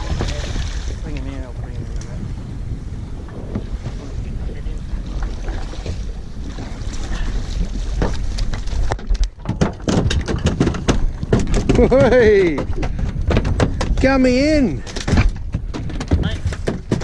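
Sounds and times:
water slapping boat hull: 0.0 - 17.0
wind buffeting microphone: 0.0 - 17.0
knocks and thumps on deck: 9.0 - 14.1, 14.9 - 17.0.

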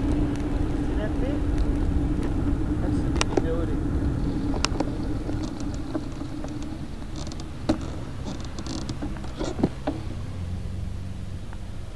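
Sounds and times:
bicycle road and wind rumble: 0.0 - 11.9
clicks and rattles: 4.5 - 10.0.

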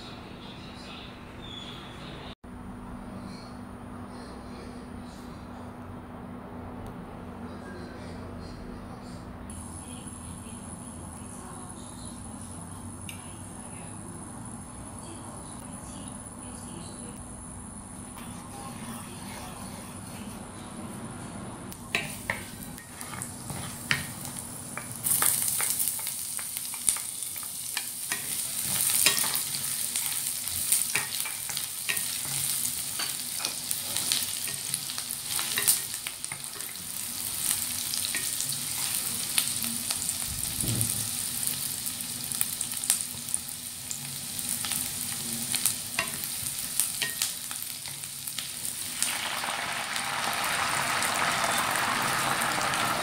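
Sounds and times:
induction cooker humming: 9.4 - 53.0
onion sizzling in hot oil: 21.7 - 53.0
wooden spatula scraping a pan: 22.1 - 24.4.

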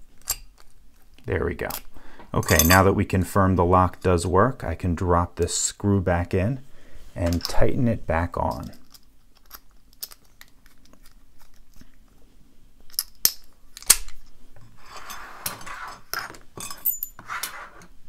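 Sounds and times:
metallic clicks and scraping: 8.5 - 12.0, 12.9 - 18.0.

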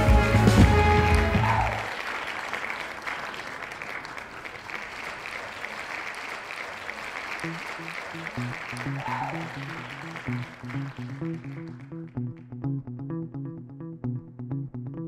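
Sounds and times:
audience applauding: 0.0 - 12.0
plucked guitar notes: 7.4 - 15.0.

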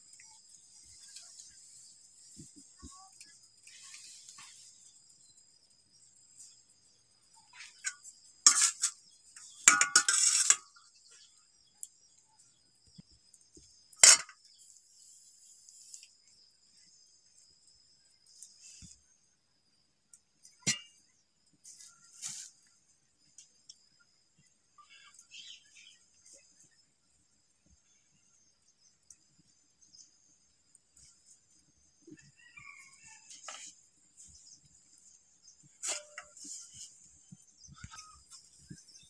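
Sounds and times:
spoon clinking on steel plate: 9.7 - 10.7.

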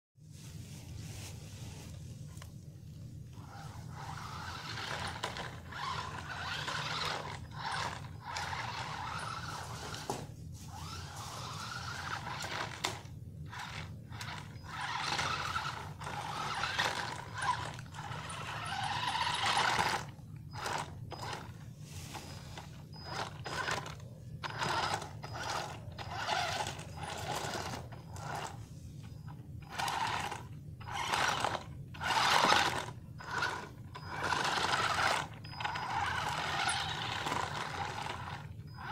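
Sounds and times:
electric motors whining: 3.3 - 38.9
wheels rolling over stone paving: 3.5 - 10.2, 10.8 - 21.4, 29.6 - 38.9.

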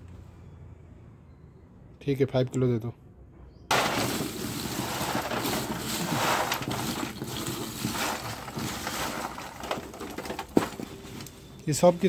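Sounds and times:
metal scoop scraping charcoal: 3.7 - 11.5.

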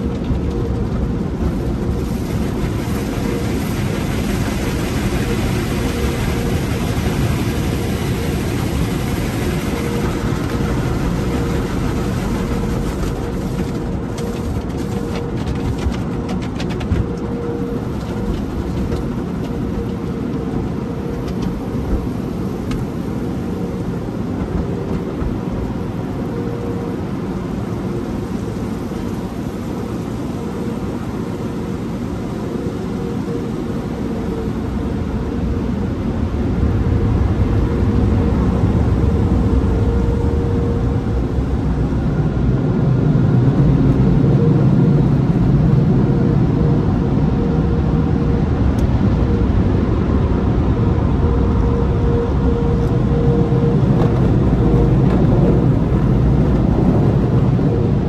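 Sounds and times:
car wash dryer blowers: 0.0 - 58.0.

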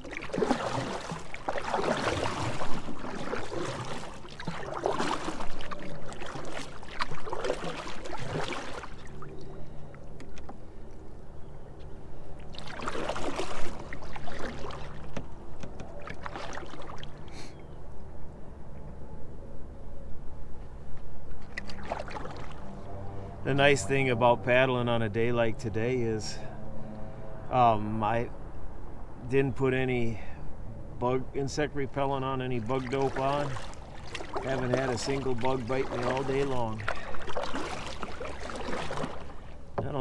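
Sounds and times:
paddle splashing in water: 0.0 - 10.6, 12.4 - 17.5, 21.4 - 22.9, 32.4 - 40.0.

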